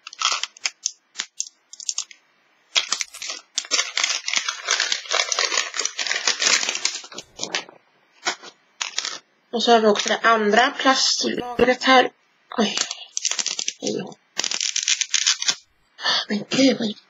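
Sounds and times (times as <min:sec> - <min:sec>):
plastic wrap crinkling and tearing: 0:00.0 - 0:02.2, 0:02.8 - 0:09.2, 0:12.8 - 0:15.6.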